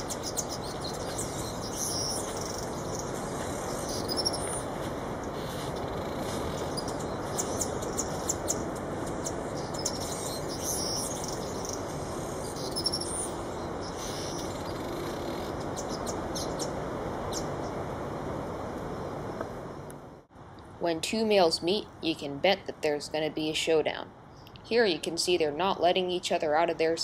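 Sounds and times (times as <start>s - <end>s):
bird ticking and chattering song: 0.0s - 16.7s
steady background hiss: 0.0s - 27.0s.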